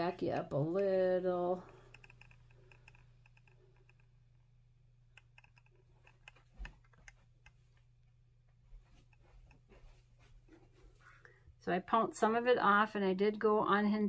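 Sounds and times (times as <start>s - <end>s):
low steady hum: 0.0s - 14.0s
handling clicks and taps: 5.1s - 7.9s.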